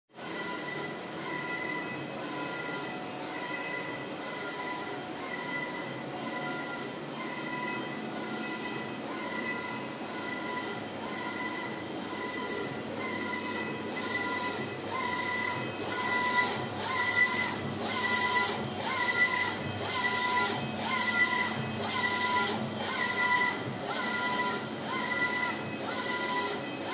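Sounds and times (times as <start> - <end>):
steady mechanical hum: 0.2 - 26.9
printer carriage motor whining: 0.4 - 26.9.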